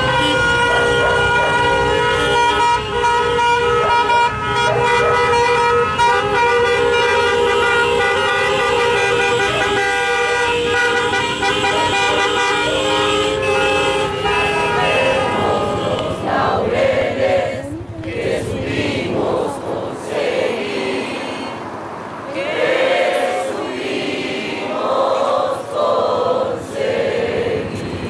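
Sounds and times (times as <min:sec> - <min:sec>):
car horns honking: 0:00.0 - 0:17.8.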